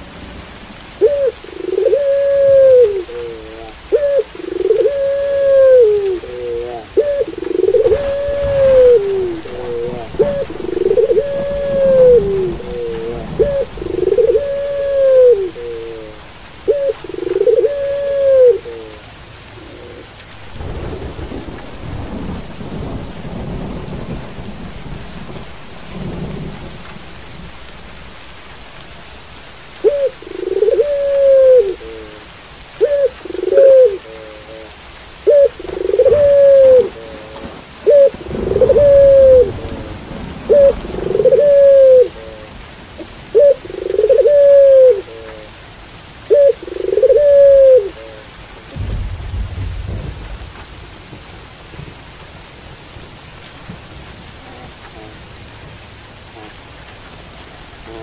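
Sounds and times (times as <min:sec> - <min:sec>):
steady rain: 0:00.0 - 0:58.0
dove cooing: 0:01.0 - 0:20.2, 0:29.8 - 0:45.6, 0:46.2 - 0:49.0.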